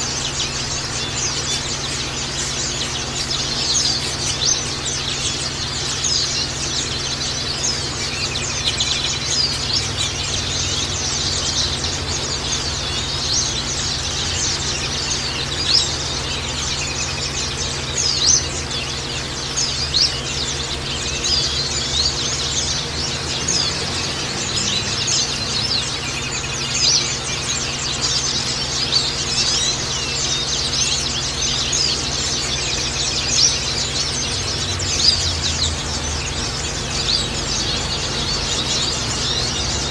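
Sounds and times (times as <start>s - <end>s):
birds chirping and singing: 0.0s - 39.9s
steady low hum: 0.0s - 39.9s.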